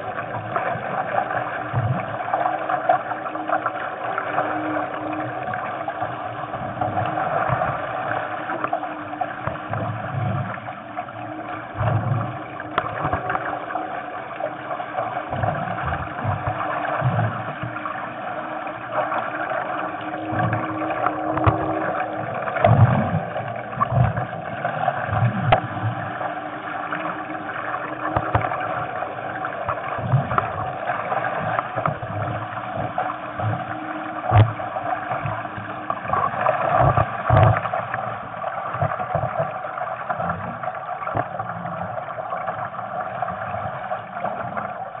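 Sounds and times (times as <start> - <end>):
water rushing along a hull: 0.0 - 45.0.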